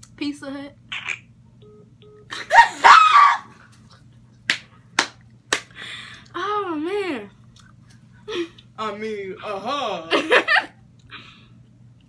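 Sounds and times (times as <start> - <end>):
young women shrieking with laughter: 2.4 - 3.5
sharp hand claps: 4.5 - 5.7.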